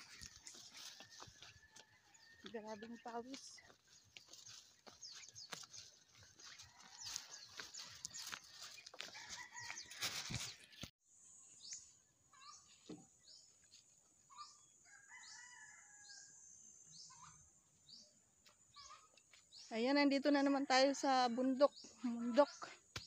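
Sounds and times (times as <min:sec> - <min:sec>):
faint birds calling: 0:00.0 - 0:10.6, 0:11.6 - 0:13.5, 0:17.0 - 0:19.7.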